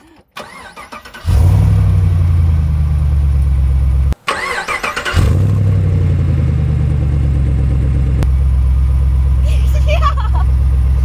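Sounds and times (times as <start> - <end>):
engine cranking: 0.1 - 1.8, 4.2 - 5.9
car engine running: 1.3 - 11.0.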